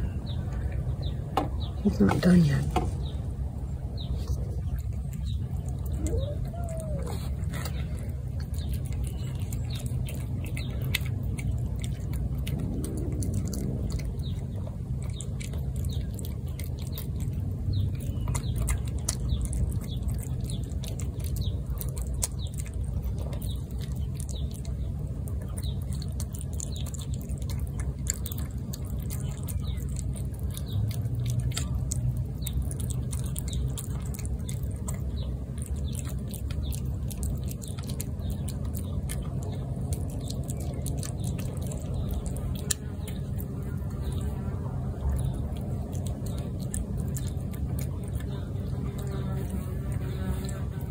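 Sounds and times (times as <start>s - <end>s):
low steady rumble: 0.0s - 50.9s
cat chewing wet food: 2.8s - 50.9s.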